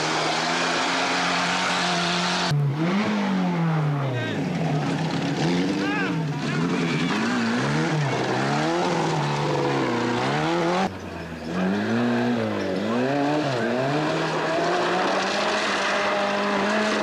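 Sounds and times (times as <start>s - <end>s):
car engine at steady high pitch: 0.0s - 11.8s
rally car engines revving: 0.0s - 17.0s.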